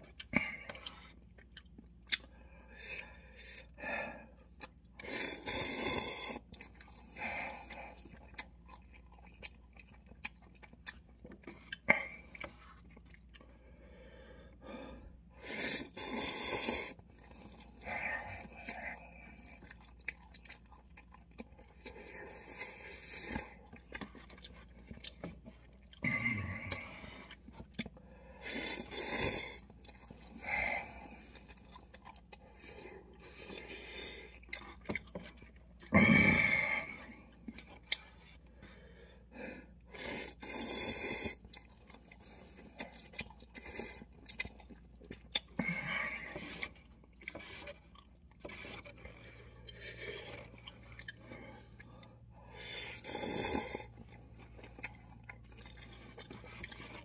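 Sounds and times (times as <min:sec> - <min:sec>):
person slurping noodles: 0:05.0 - 0:06.5, 0:15.4 - 0:18.9, 0:39.9 - 0:41.4, 0:52.8 - 0:54.1.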